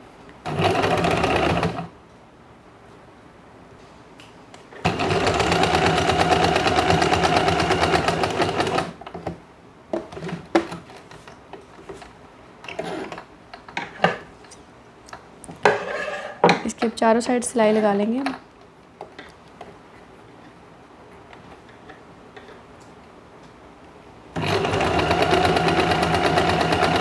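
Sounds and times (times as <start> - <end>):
sewing machine stitching: 0.4 - 1.9, 4.8 - 9.0, 24.4 - 27.0.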